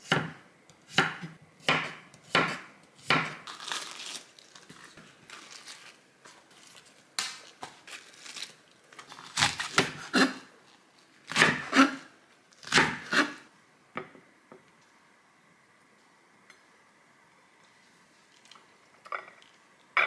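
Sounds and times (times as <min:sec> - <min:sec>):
cabbage leaves crackling: 0:03.4 - 0:09.9.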